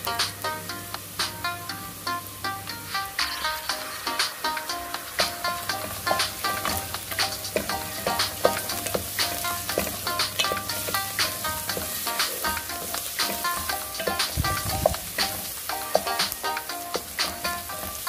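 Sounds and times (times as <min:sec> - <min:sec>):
light background music: 0:00.0 - 0:18.0
onion sizzling in hot oil: 0:02.1 - 0:18.0
wooden spatula stirring: 0:05.2 - 0:18.0.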